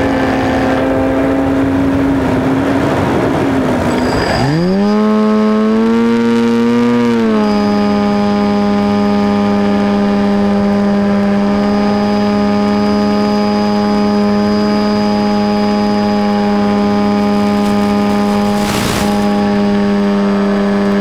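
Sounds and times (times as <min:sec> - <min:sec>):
electric motor propeller buzzing: 0:00.0 - 0:21.0
radio static hiss: 0:17.3 - 0:19.4.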